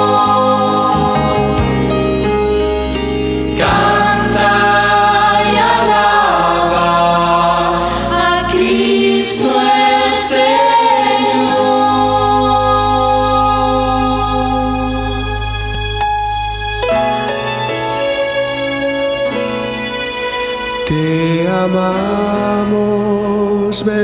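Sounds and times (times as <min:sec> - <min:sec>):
people singing worship song: 0:00.0 - 0:02.2, 0:03.5 - 0:15.8
sustained instrumental chords: 0:00.0 - 0:24.0.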